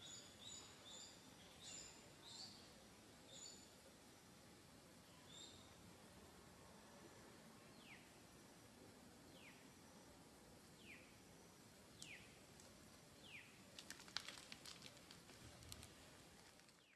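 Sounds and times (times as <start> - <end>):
faint clicks and ticks: 13.7 - 16.9.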